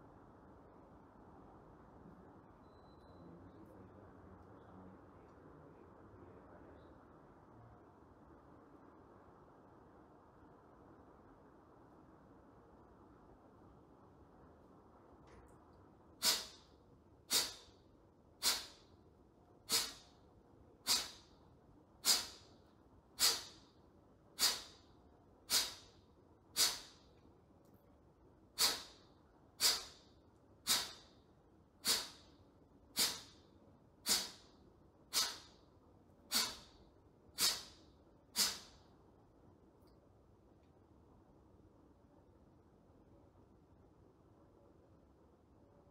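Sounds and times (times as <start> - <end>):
forceful hissing exhalations: 16.2 - 16.7, 17.3 - 17.8, 18.4 - 18.9, 19.6 - 20.2, 20.8 - 21.3, 22.0 - 22.6, 23.2 - 23.7, 24.4 - 24.9, 25.5 - 25.9, 26.6 - 27.0, 28.6 - 29.0, 29.6 - 30.0, 30.6 - 31.1, 31.8 - 32.3, 32.9 - 33.4, 34.0 - 34.5, 35.1 - 35.6, 36.3 - 36.8, 37.4 - 38.8.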